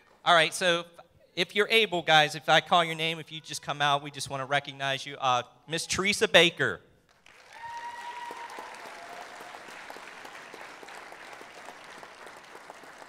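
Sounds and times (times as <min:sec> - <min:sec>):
audience applauding: 0:07.1 - 0:13.0.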